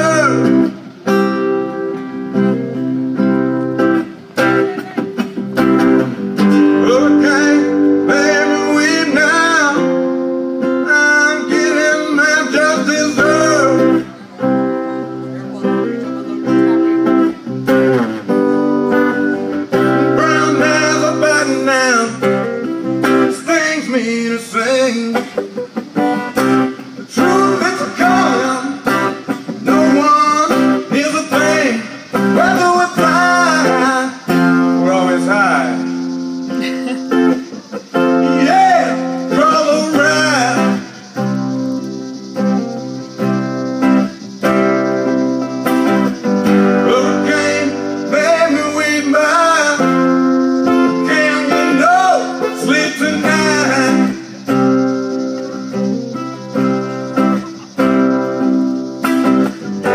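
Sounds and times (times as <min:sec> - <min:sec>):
man singing: 0:00.0 - 0:00.8, 0:06.5 - 0:16.9, 0:19.0 - 0:25.5, 0:27.0 - 0:41.3, 0:46.7 - 0:54.6
acoustic guitar strummed and picked: 0:00.0 - 0:59.9.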